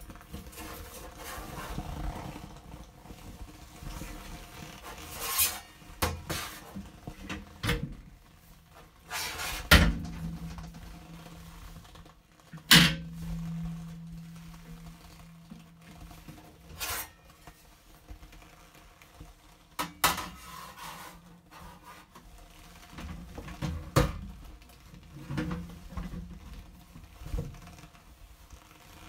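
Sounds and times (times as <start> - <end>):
metal rack knocking and clattering: 9.7 - 11.2.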